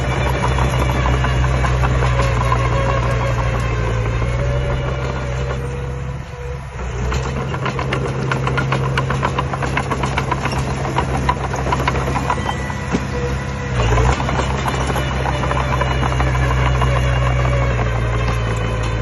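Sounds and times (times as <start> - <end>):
rapid uneven clatter of knocks: 0.0 - 5.1, 7.1 - 13.2
diesel engines running: 0.0 - 19.0.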